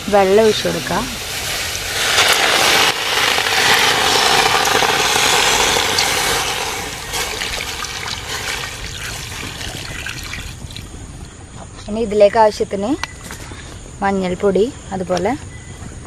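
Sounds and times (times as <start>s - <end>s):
water pouring from a jug: 1.7s - 10.9s
water splashing onto pieces: 2.1s - 10.9s.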